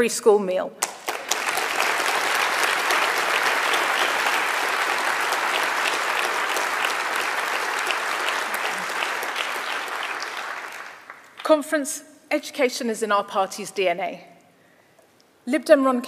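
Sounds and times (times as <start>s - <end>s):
audience applauding: 0.8s - 11.4s.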